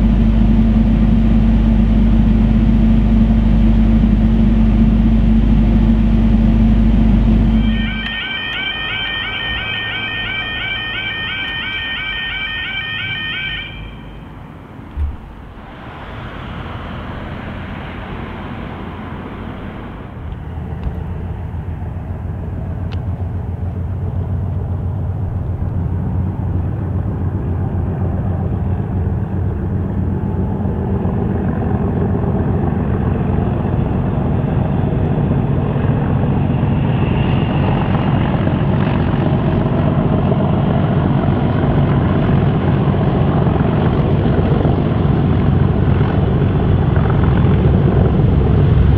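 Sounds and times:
diesel locomotive engines rumbling: 0.0 - 48.9
sharp thump: 14.9 - 15.5.

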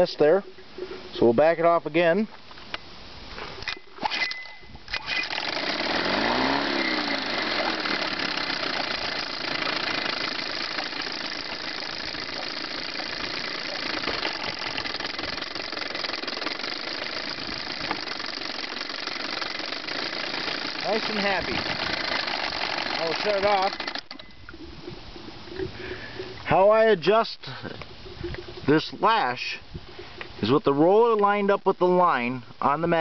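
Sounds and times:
outboard engine running: 5.2 - 24.6.

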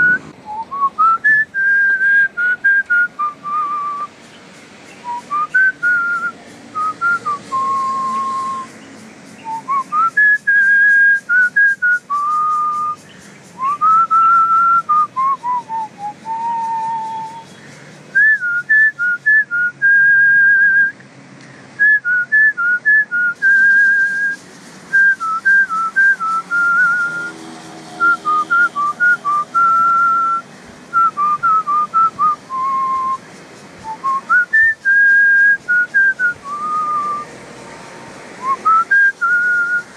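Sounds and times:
person whistling a tune: 0.0 - 4.1, 5.0 - 8.7, 9.4 - 13.0, 13.6 - 17.5, 18.2 - 21.0, 21.8 - 27.4, 28.0 - 33.2, 33.8 - 37.2, 38.4 - 39.9.

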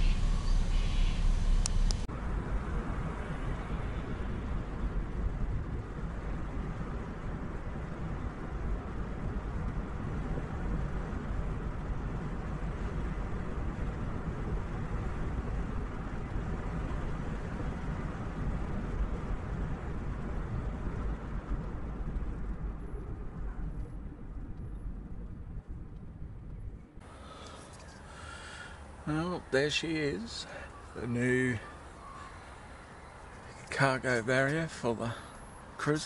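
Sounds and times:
road and engine rumble inside car: 0.0 - 28.0.

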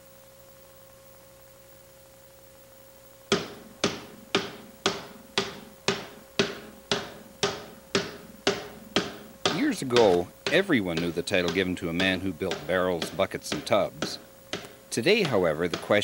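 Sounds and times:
faint steady hum: 0.0 - 16.0
hammer blows on metal hoop: 3.3 - 16.0.

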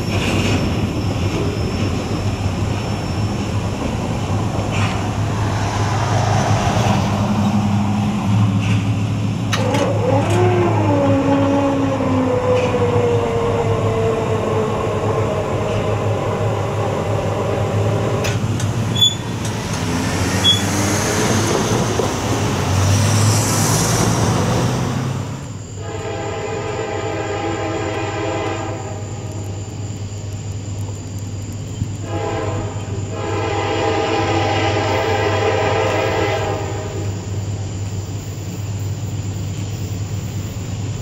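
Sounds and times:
distant train horn wavering: 9.6 - 18.4, 25.8 - 29.3, 32.0 - 37.3
loud multi-note train horn: 25.8 - 29.1, 32.0 - 37.2.

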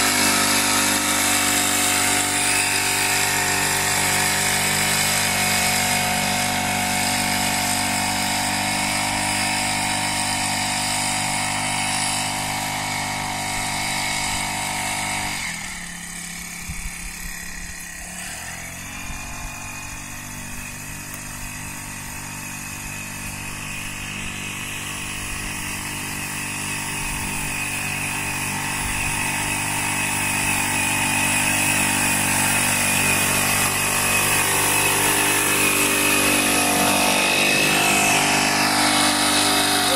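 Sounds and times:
backpack sprayer engine: 0.0 - 39.9.

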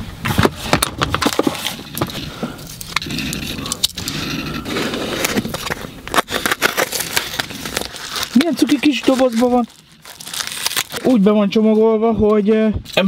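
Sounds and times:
knife scraping through cardboard: 3.0 - 8.4
cardboard box rustling: 4.6 - 11.2.

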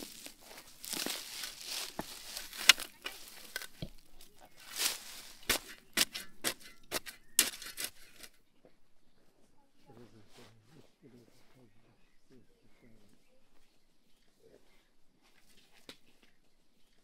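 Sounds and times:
shovel crunching into turf: 0.0 - 8.4.

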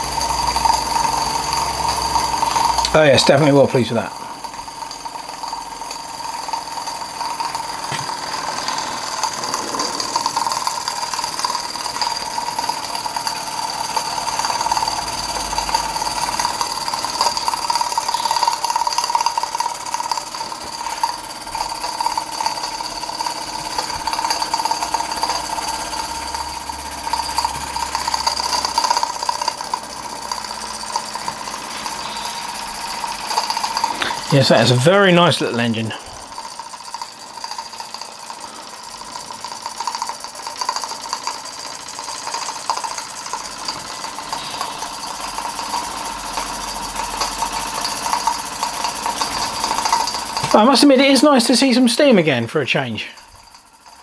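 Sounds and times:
steady high tone: 0.0 - 39.0
model steam engine running: 0.0 - 54.0.

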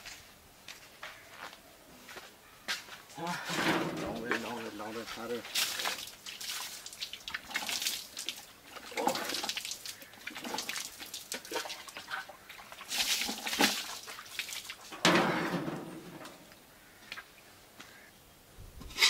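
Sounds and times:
water splashing: 3.5 - 16.6.

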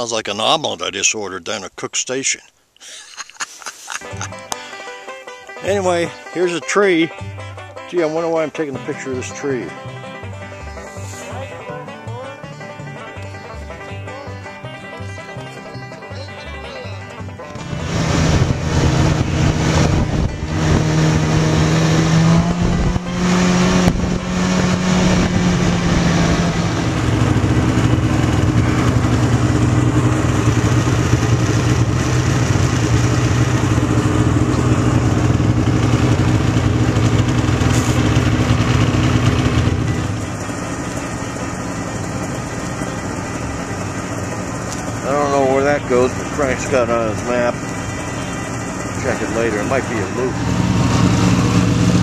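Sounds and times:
snowmobile engine: 5.6 - 6.9, 17.4 - 52.0.

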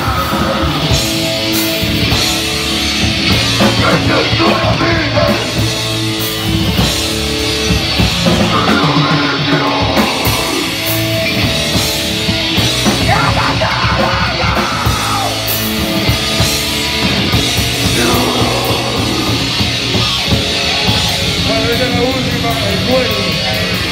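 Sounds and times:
distorted bass guitar: 0.0 - 23.9
drums with crashing cymbals: 0.0 - 23.9
person yelling into a microphone: 13.0 - 15.5, 17.9 - 19.7.

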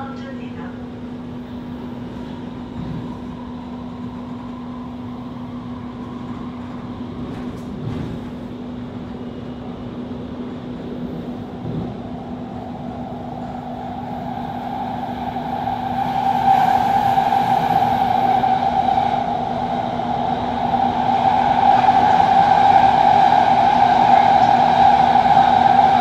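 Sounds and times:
train running through tunnel: 0.0 - 26.0
high whine: 12.4 - 26.0.

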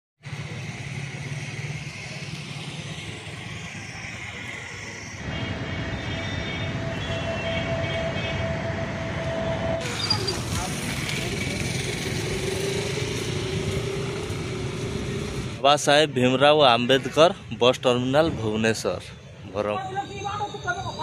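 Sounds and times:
heavy vehicle engine rumble: 0.2 - 15.6
steady whine: 0.3 - 15.6.

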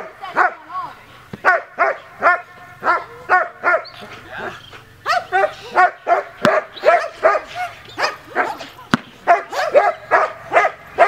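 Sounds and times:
dog barking sharply: 5.1 - 8.7, 9.3 - 10.8.

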